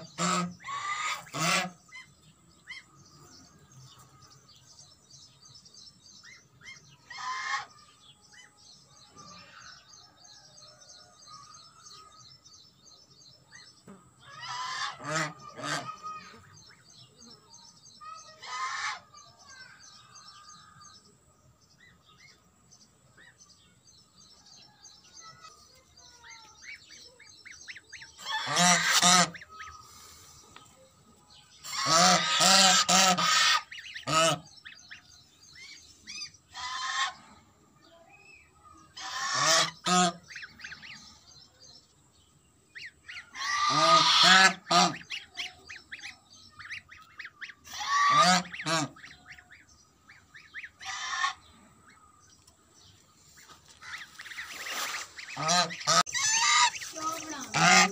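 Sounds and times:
geese honking: 0.0s - 2.1s, 6.6s - 7.7s, 14.3s - 16.4s, 18.4s - 19.1s, 27.7s - 30.2s, 31.6s - 35.0s, 36.1s - 37.3s, 39.0s - 40.9s, 43.1s - 51.5s, 53.4s - 57.9s
chick peeping: 42.7s - 57.9s.

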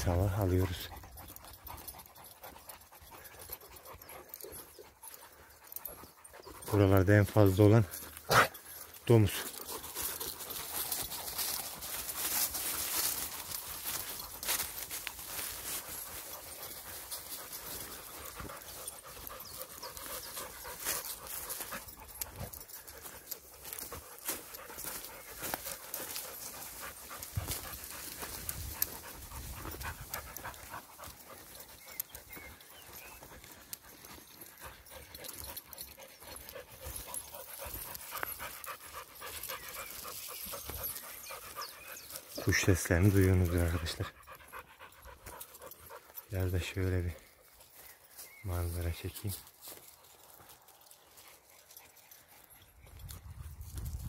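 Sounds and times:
dog panting: 0.0s - 47.8s, 49.4s - 53.2s
steps crunching through dry leaves: 7.9s - 44.0s, 45.2s - 52.3s.

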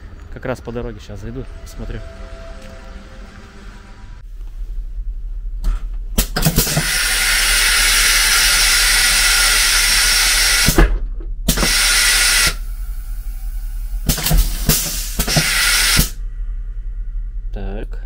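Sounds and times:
toilet flushing rush of air and water: 6.2s - 10.8s, 11.5s - 16.2s.

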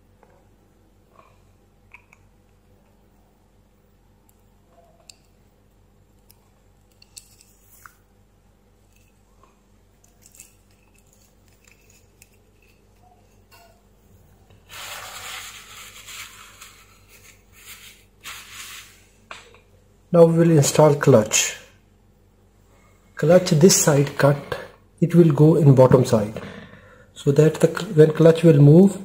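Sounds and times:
rubbing and scraping: 14.6s - 19.2s.

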